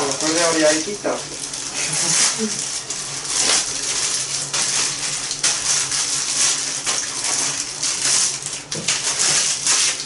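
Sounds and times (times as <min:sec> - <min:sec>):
wrappers tearing: 0:03.3 - 0:06.6
plastic wrappers crinkling: 0:03.3 - 0:08.3.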